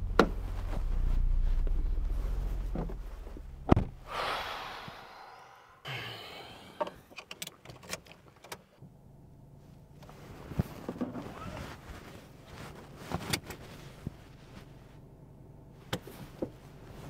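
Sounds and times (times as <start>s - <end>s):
rustling in car seat: 0.1s - 3.7s, 9.7s - 15.0s, 15.7s - 17.0s
car door slamming: 3.6s - 4.0s.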